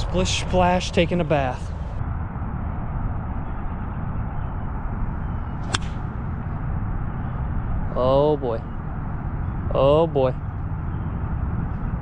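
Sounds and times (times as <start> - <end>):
golf club striking ball: 5.6 - 6.1.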